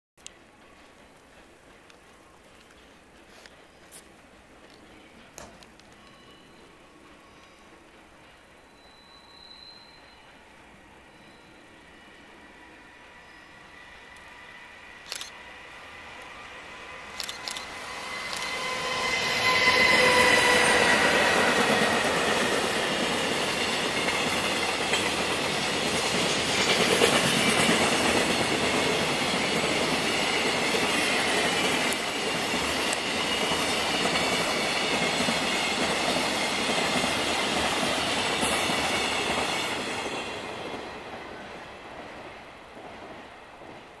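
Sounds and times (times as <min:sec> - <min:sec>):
train wheels on rail: 0:00.2 - 0:44.0
locomotive whine: 0:08.6 - 0:25.7
sharp clicks: 0:15.0 - 0:15.4.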